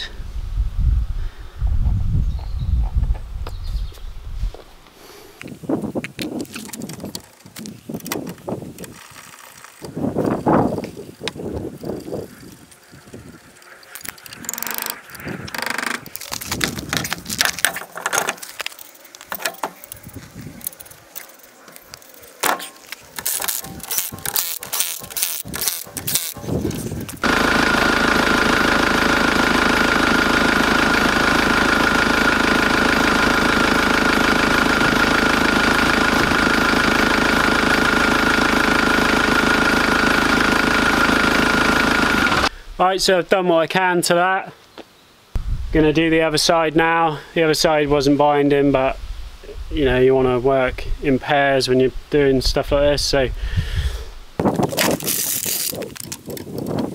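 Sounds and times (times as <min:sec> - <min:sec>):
mechanical drone with whine: 0:06.4 - 0:42.5
ratchet clicking on bolts: 0:23.2 - 0:26.4.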